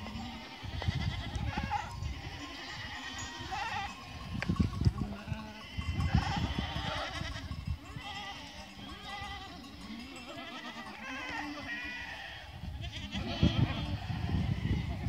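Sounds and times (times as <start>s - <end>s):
goats bleating: 0.0s - 15.0s.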